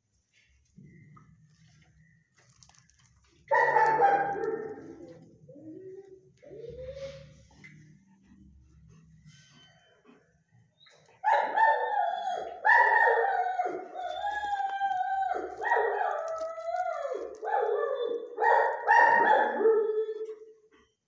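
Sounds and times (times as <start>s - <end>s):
dog whining and howling: 3.5s - 7.9s, 11.2s - 20.6s.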